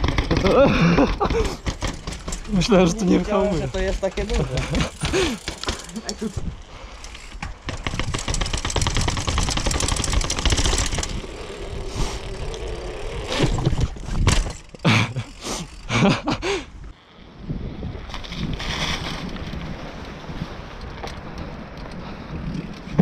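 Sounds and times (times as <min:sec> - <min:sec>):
sharp knocks: 0:00.0 - 0:02.5
tyre rumble: 0:00.0 - 0:06.6, 0:07.2 - 0:16.1
wind: 0:00.0 - 0:23.0
bicycle hub ratcheting clicks: 0:03.7 - 0:06.4.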